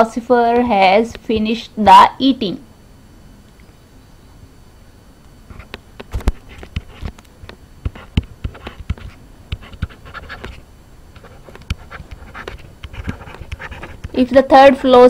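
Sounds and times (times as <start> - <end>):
stylus tapping and scratching: 5.5 - 15.0.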